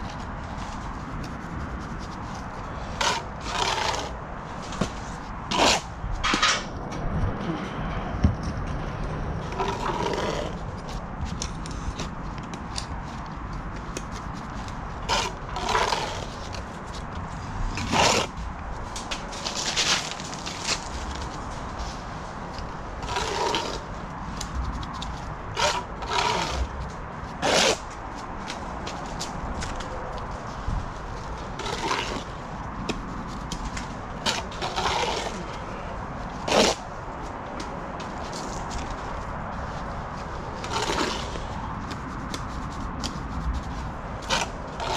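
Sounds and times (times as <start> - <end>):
trowel scraping mortar on brick: 1.2 - 6.6, 9.4 - 12.1, 13.8 - 17.0, 17.8 - 18.4, 23.0 - 23.9, 25.5 - 27.9, 31.6 - 32.3, 34.2 - 35.6, 36.4 - 36.9, 40.6 - 42.0, 44.2 - 44.9.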